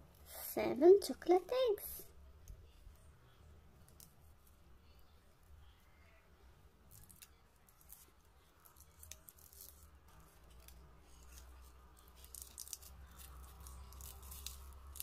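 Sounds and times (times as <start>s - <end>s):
foil wrapper crinkling and tearing: 8.7s - 15.0s.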